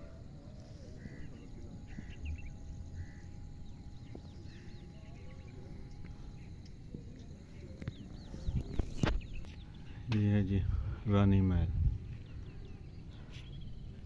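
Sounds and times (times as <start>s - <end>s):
birds chirping: 0.0s - 14.0s
wind rumble on microphone: 5.6s - 14.0s.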